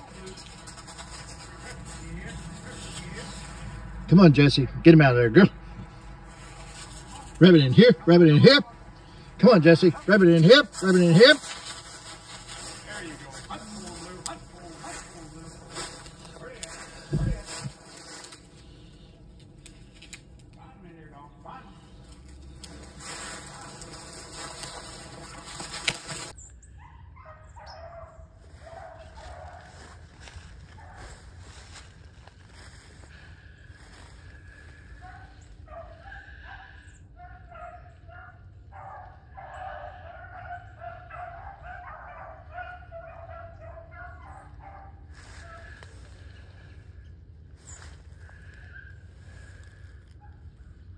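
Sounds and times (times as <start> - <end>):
dry brush rustling and crackling: 0.0 - 3.9, 5.7 - 20.8, 21.6 - 26.4, 28.4 - 36.2, 41.2 - 50.9
hounds baying: 22.2 - 31.6, 34.4 - 46.8.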